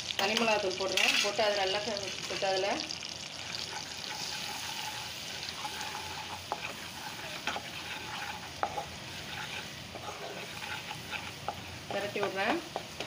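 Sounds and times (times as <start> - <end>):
butter sizzling in a pan: 0.0 - 13.0
spatula tapping and scraping pan: 3.6 - 13.0.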